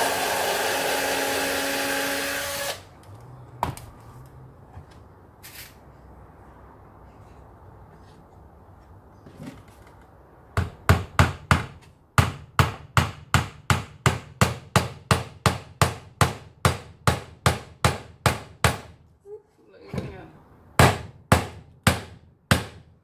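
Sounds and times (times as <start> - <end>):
hammer tapping a nail into wood: 10.6 - 18.9, 20.8 - 22.8.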